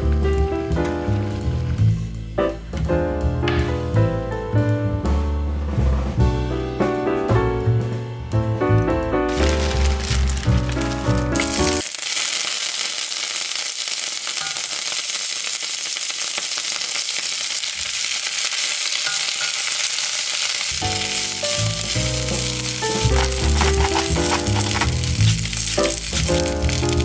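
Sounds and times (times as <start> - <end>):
background music: 0.0 - 11.8, 20.8 - 27.0
oil sizzling and spattering: 9.3 - 27.0.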